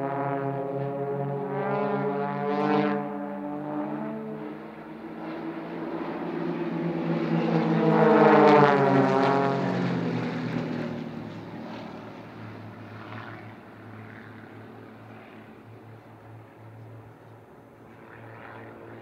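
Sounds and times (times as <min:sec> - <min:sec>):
model plane propeller engines passing: 0:00.0 - 0:19.0.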